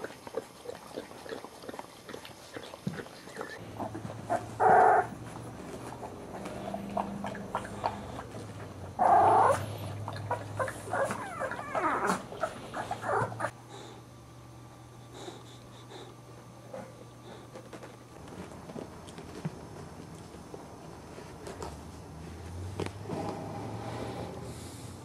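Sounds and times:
puppies crying and whining: 3.2 - 5.3, 6.6 - 13.6.

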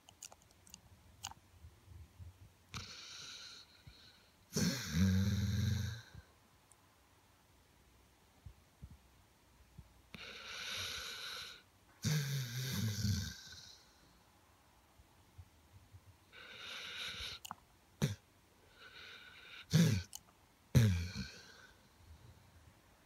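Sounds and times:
snuffling clicks: 0.0 - 1.4, 17.1 - 18.2, 19.7 - 20.4
dog snoring: 2.7 - 6.2, 10.1 - 13.9, 16.3 - 20.2, 20.8 - 21.7.

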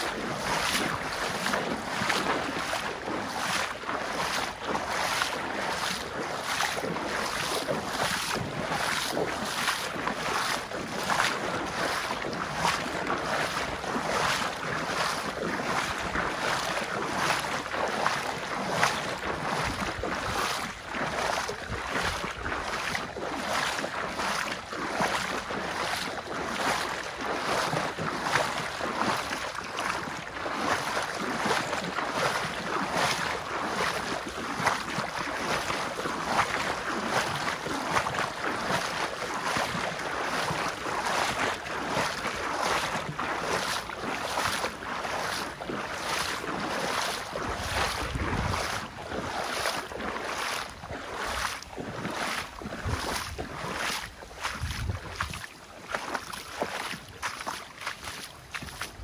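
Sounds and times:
river water rushing: 0.0 - 21.6, 22.4 - 59.0
wind on microphone: 47.4 - 49.1, 54.4 - 55.5.

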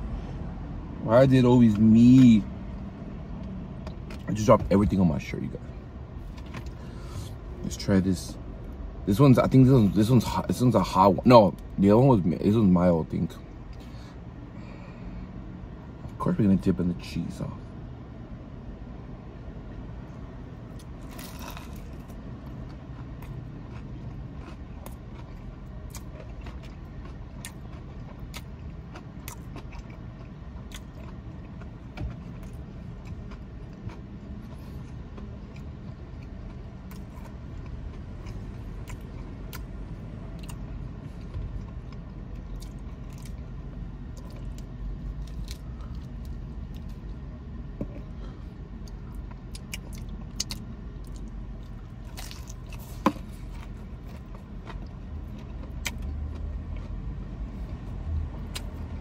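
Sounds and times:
low rumble inside a car: 0.0 - 59.0
person chewing crispy food: 20.7 - 59.0.

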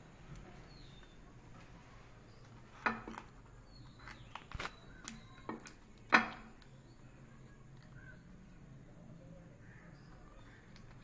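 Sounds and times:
taps and knocks on a plate: 5.5 - 6.5.

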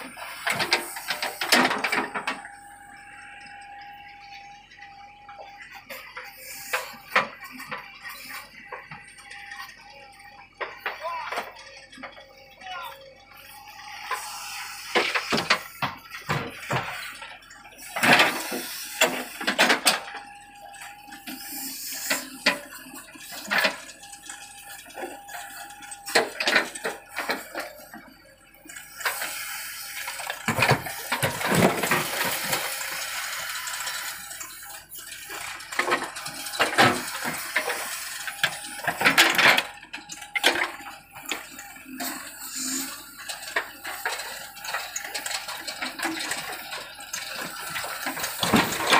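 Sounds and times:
backhoe bucket knocking and clattering: 15.0 - 17.1, 30.2 - 32.9, 43.4 - 48.9.

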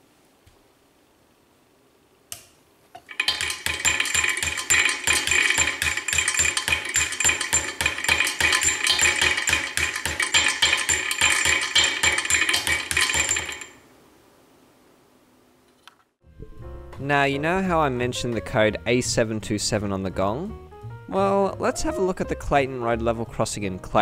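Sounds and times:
level crossing bell ringing: 10.9 - 13.8.

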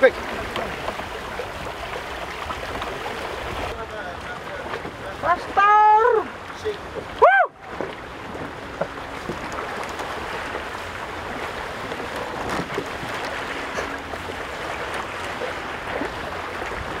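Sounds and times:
water washing at shore: 0.0 - 17.0
wind: 0.0 - 17.0
distant shouts: 7.2 - 7.7.

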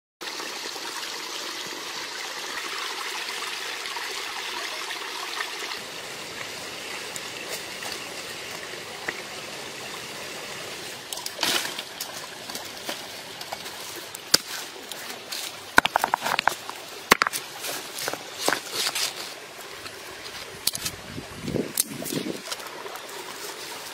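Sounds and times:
stream water trickling: 0.2 - 23.9
knife striking stone: 15.8 - 17.4.

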